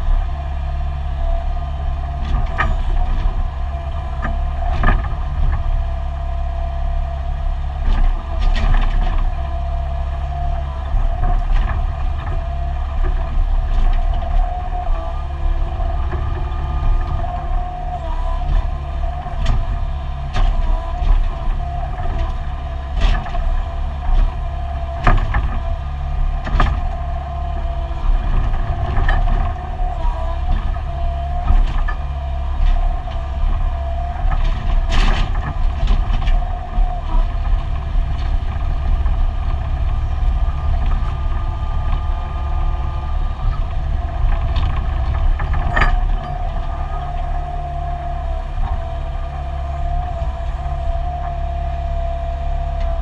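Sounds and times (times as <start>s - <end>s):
excavator diesel engine running: 0.0s - 53.0s
steady whine: 0.0s - 53.0s
digging knocks and clunks: 7.8s - 52.0s.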